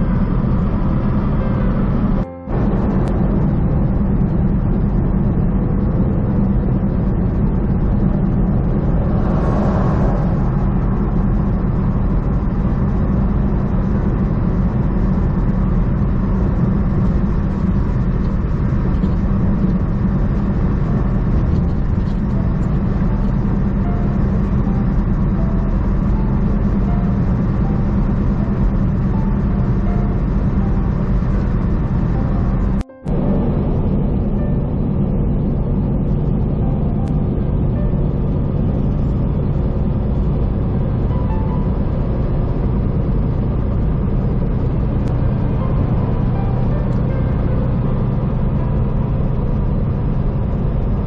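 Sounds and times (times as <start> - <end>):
road noise: 0.0 - 51.0
truck engine drone: 0.0 - 51.0.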